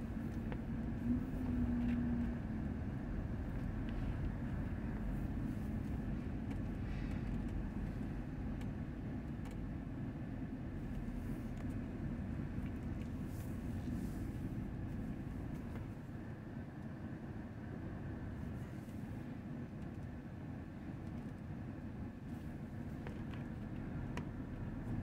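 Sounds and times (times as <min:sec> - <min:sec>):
faint hum: 0:00.0 - 0:25.0
vehicle engines rumbling: 0:00.0 - 0:25.0.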